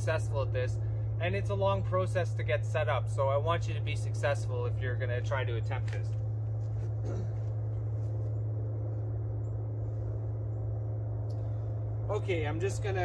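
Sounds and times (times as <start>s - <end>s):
steady low hum: 0.0s - 13.0s
faint footsteps: 5.8s - 8.6s.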